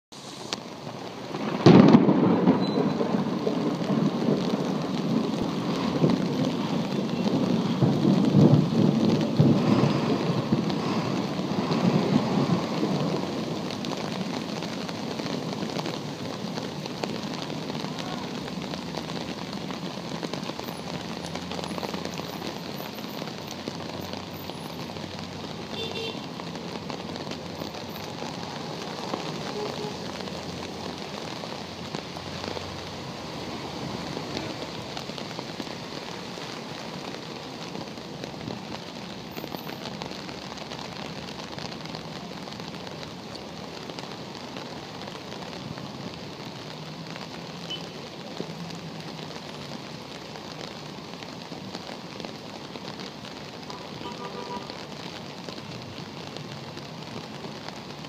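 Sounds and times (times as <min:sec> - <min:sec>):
heavy rain on flooded street: 0:00.0 - 0:58.0
thunder rolling: 0:01.3 - 0:19.8.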